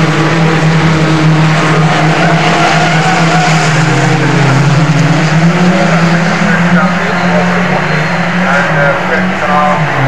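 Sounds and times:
race car engines at high revs: 0:00.0 - 0:10.0.

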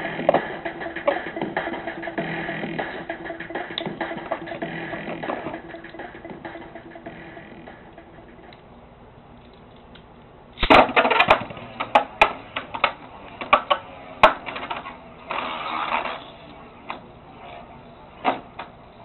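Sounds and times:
spinning tops launched: 0:10.6 - 0:16.3.

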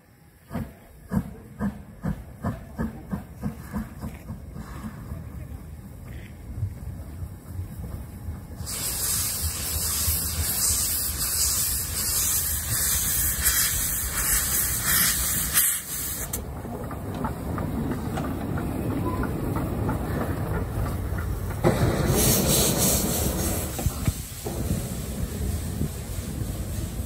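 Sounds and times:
pulsing hiss of escaping steam: 0:08.5 - 0:16.4, 0:21.6 - 0:27.0.

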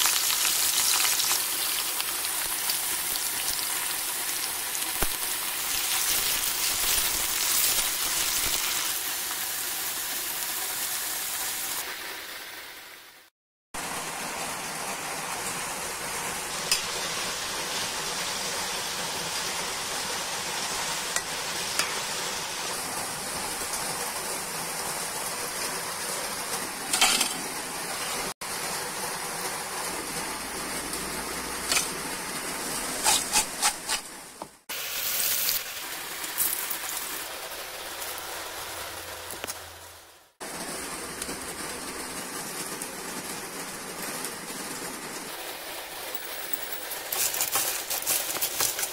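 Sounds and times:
potatoes sizzling in hot oil: 0:00.0 - 0:13.2, 0:13.8 - 0:48.9
spatula scraping and knocking pan: 0:32.9 - 0:34.6, 0:47.1 - 0:48.9.

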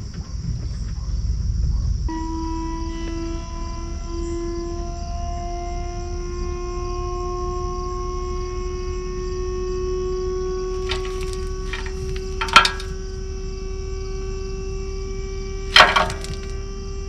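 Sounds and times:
sharp knocks: 0:10.8 - 0:13.0, 0:15.8 - 0:16.5.

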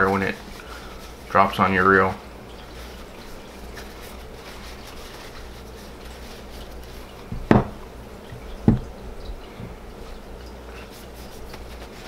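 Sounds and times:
paper towel rustling: 0:00.0 - 0:12.0
dull knocks on table: 0:07.3 - 0:07.8.

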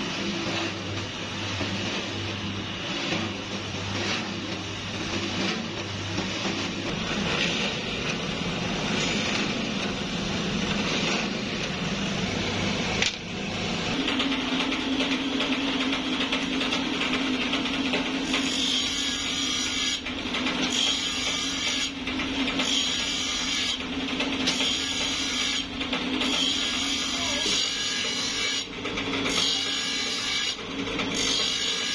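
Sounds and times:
high grinding noise: 0:00.0 - 0:31.9
drill press boring: 0:17.6 - 0:31.9.

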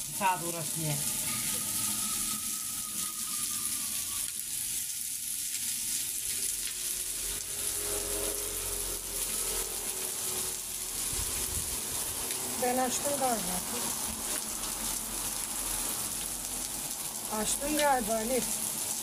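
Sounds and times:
meat sizzling on a griddle: 0:00.0 - 0:19.0.

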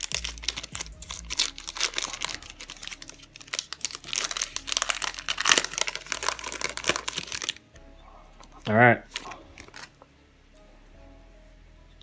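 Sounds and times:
foil wrapper crinkling: 0:00.0 - 0:07.6, 0:08.5 - 0:10.0.

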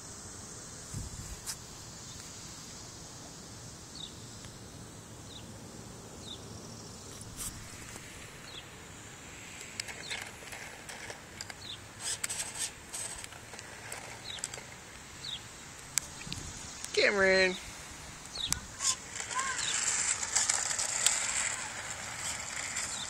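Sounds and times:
high insect hum: 0:00.0 - 0:23.0
sharp clicks and rattles: 0:09.6 - 0:14.8, 0:18.2 - 0:23.0.

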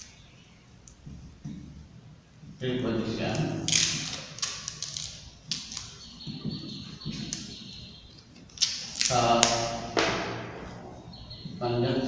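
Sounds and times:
marker squeaking on whiteboard: 0:03.9 - 0:08.8.

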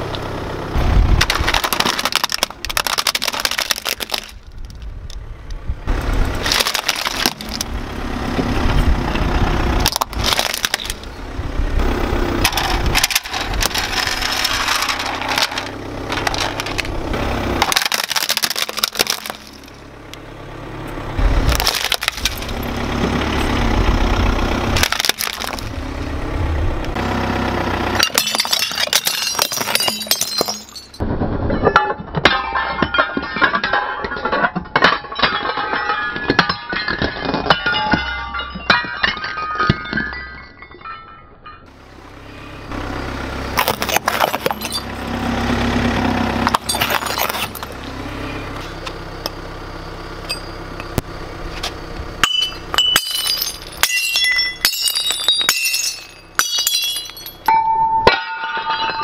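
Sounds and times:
car tyre crushing plastic toy: 0:01.2 - 0:05.2, 0:06.4 - 0:07.8, 0:09.8 - 0:11.1, 0:12.4 - 0:17.0, 0:17.6 - 0:19.8, 0:21.4 - 0:22.6, 0:24.8 - 0:25.7, 0:43.5 - 0:44.8, 0:46.4 - 0:47.8
hatchet smashing porcelain: 0:28.0 - 0:31.0, 0:52.3 - 0:57.5
porcelain cups shattering: 0:28.0 - 0:31.0, 0:43.6 - 0:45.0, 0:46.5 - 0:47.8, 0:52.2 - 0:59.0.

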